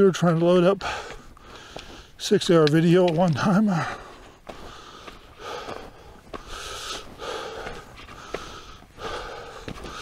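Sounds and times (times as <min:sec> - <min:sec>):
man breathing heavily: 0:00.8 - 0:02.2, 0:03.6 - 0:10.0.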